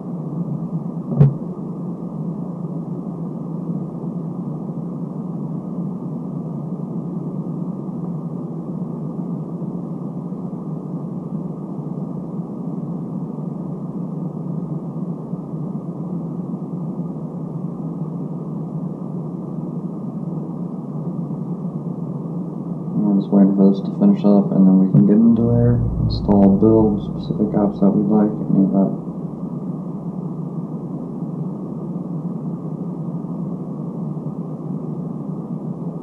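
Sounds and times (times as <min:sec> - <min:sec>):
low droning background noise: 0:00.0 - 0:02.7, 0:23.1 - 0:31.0.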